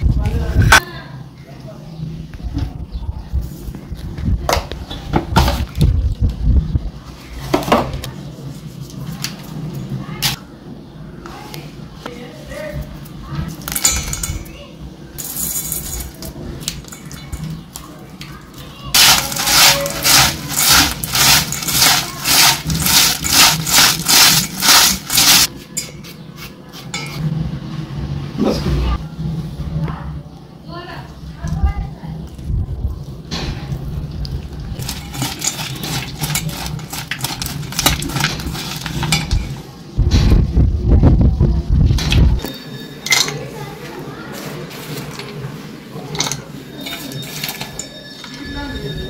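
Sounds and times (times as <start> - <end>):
hand mixing crunchy snack: 19.0 - 25.5, 34.8 - 39.2
low rumble: 40.0 - 42.4.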